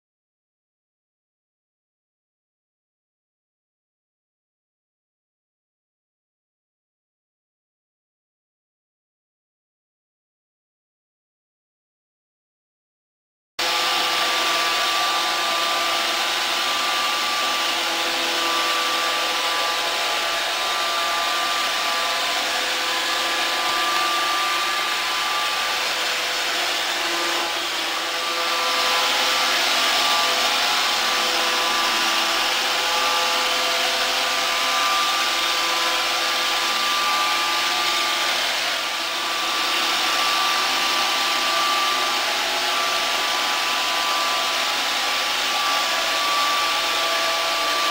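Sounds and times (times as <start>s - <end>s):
robot vacuum whirring: 14.4s - 47.9s.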